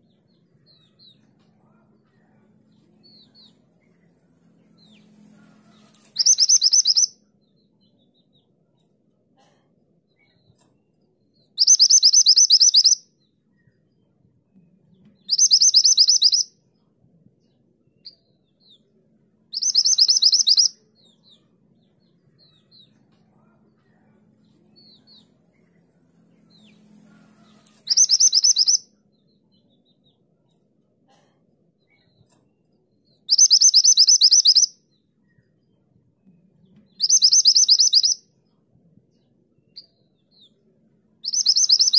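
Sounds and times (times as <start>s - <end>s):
faint bird chirps: 0.0s - 30.6s, 31.2s - 41.9s
bird trilling: 6.2s - 7.1s, 11.6s - 13.0s, 15.3s - 16.5s, 19.6s - 20.7s, 27.8s - 28.8s, 33.3s - 34.7s, 37.0s - 38.2s, 41.2s - 41.9s.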